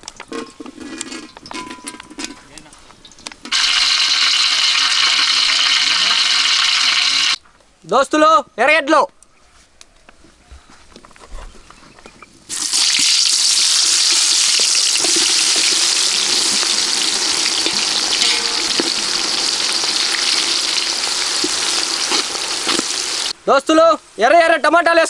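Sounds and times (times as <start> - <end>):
onions sizzling in hot oil: 3.0 - 7.4, 12.5 - 23.4.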